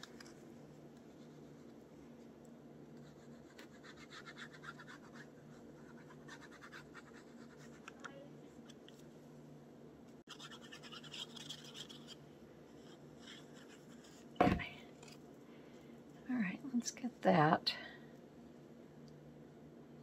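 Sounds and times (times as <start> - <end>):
glue tip scratching on paper: 3.0 - 8.0, 10.3 - 12.2.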